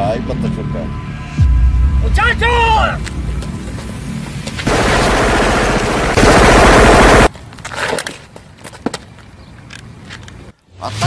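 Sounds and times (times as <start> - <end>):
automatic gunfire: 4.7 - 7.3.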